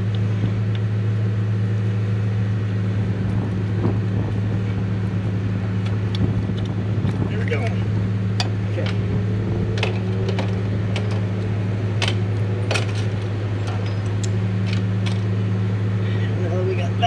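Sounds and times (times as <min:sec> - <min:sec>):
low mechanical hum: 0:00.0 - 0:17.0.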